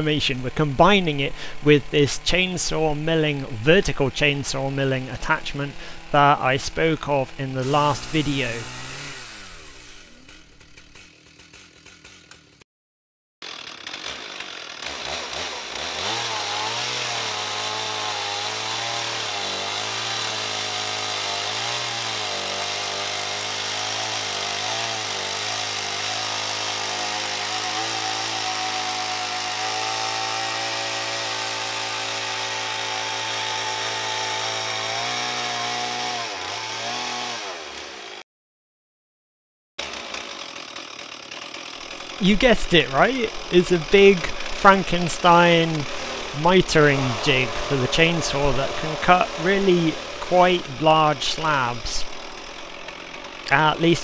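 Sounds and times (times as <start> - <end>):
chainsaw cutting wood: 0.0 - 12.6, 13.4 - 38.2, 39.8 - 54.0.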